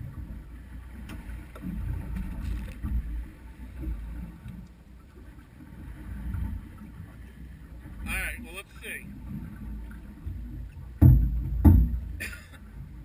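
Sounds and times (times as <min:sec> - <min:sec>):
wind and water rumble: 0:00.0 - 0:13.0.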